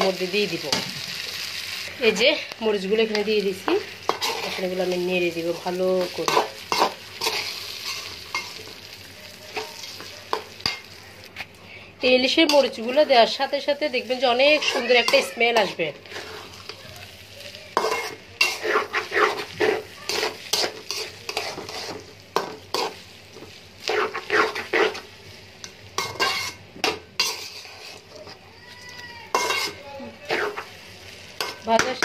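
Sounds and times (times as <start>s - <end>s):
rice sizzling: 0.0s - 32.0s
metal spoon scraping a pot: 14.4s - 16.7s, 17.8s - 23.0s, 23.8s - 25.0s, 26.0s - 28.4s, 29.3s - 30.7s.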